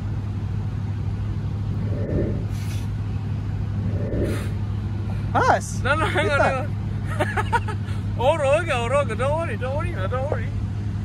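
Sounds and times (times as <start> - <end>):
steady low hum: 0.0 - 8.2
man exhaling breathily: 3.8 - 5.3.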